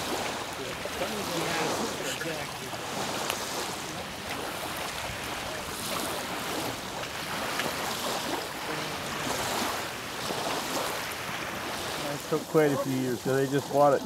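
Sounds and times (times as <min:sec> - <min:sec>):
waves lapping on sandy shore: 0:00.0 - 0:14.0
wind: 0:00.0 - 0:14.0.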